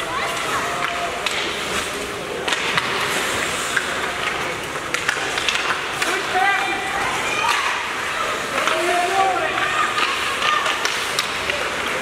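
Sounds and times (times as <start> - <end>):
faint crowd voices: 0.0 - 12.0
hockey sticks and puck clicking: 0.0 - 12.0
skate blades scraping ice: 0.0 - 12.0.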